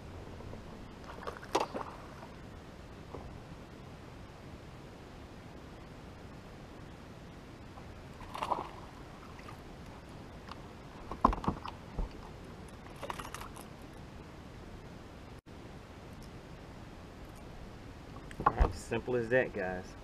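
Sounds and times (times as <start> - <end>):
short rattle: 11.1 - 13.9.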